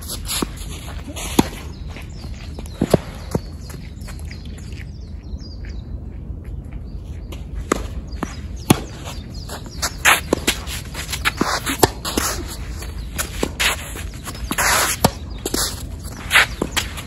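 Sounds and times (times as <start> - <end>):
birds chirping: 0.2 - 17.0
tennis ball hit by rackets: 7.6 - 9.0, 10.0 - 12.6, 14.4 - 17.0.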